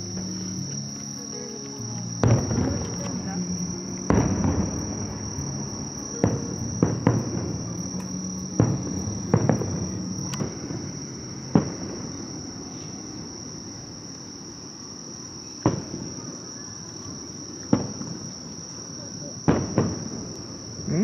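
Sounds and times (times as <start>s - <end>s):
insect trill: 0.0s - 21.0s
distant fireworks booming: 2.2s - 14.0s, 15.6s - 18.5s, 19.3s - 21.0s.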